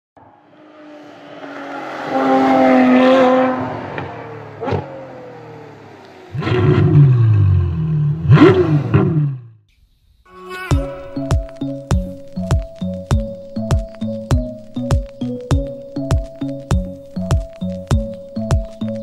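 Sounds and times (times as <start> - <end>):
car engine revving: 0.2 - 9.6.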